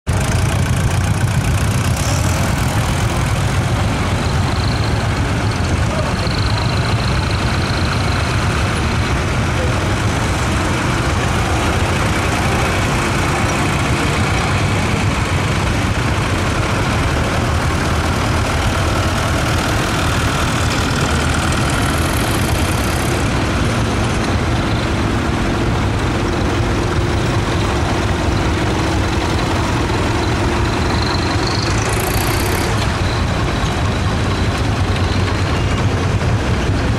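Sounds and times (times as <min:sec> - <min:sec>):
tractor engines rumbling: 0:00.0 - 0:36.9.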